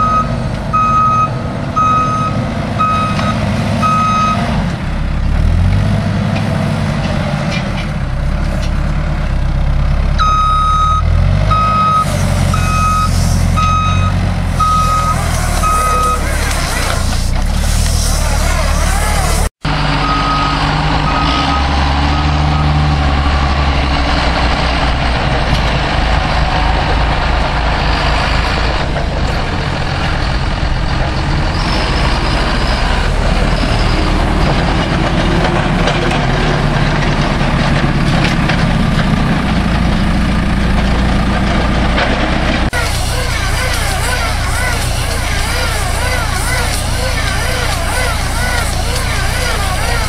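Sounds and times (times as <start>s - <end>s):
reversing beeps: 0.0s - 4.5s, 10.2s - 16.6s, 20.0s - 23.8s
diesel engines running: 0.0s - 50.0s.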